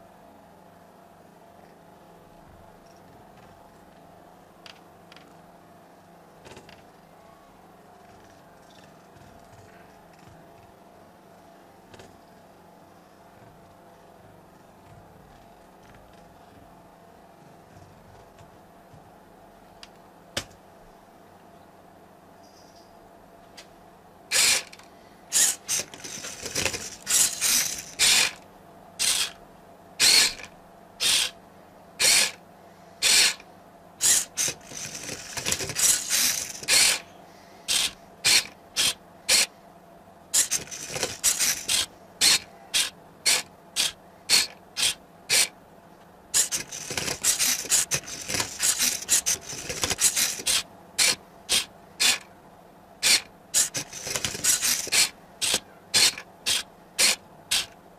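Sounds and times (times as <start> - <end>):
robot motors turning cube: 24.3 - 28.4, 29.0 - 29.4, 30.0 - 31.4, 32.0 - 32.4, 33.0 - 33.4, 34.0 - 37.0, 37.7 - 39.5, 40.4 - 45.5, 46.4 - 52.3, 53.0 - 57.8.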